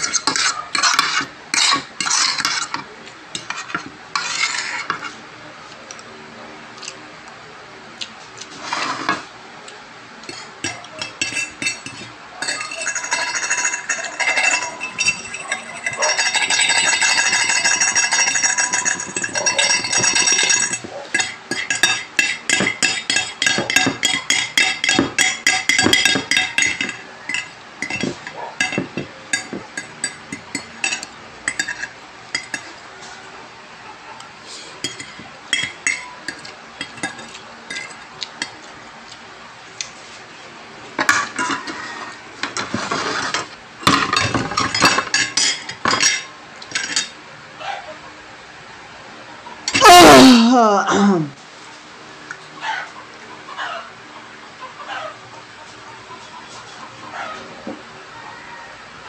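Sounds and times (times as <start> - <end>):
fork and spoon clinking on plate: 10.2 - 32.8, 34.8 - 38.6, 43.9 - 47.2.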